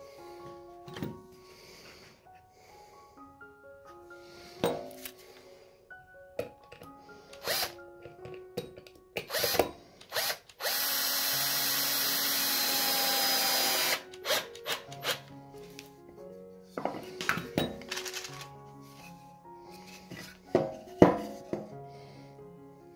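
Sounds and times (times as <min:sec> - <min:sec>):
power drill driving screw into wood: 0:07.4 - 0:07.8, 0:09.2 - 0:15.2.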